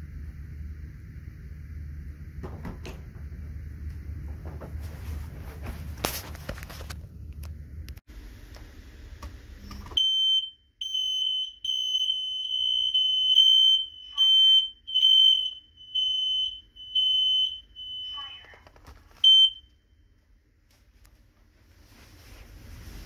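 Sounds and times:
smoke alarm beeping: 10.0 - 18.6, 19.2 - 19.8.

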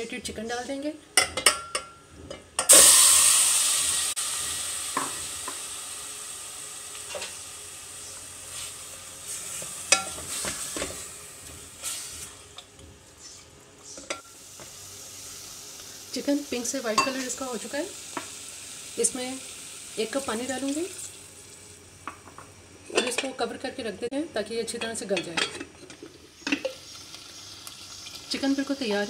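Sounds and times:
food sizzling in hot oil: 2.7 - 12.6, 14.1 - 22.8, 26.0 - 29.0.

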